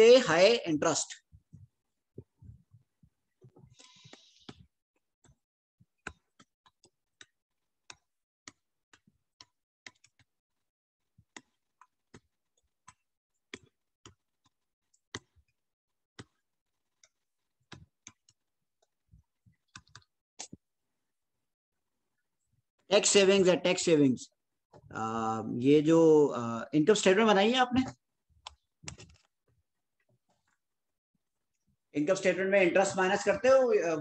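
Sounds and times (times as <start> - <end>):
stylus tapping on tablet screen: 1.5 - 10.3, 16.2 - 20.6.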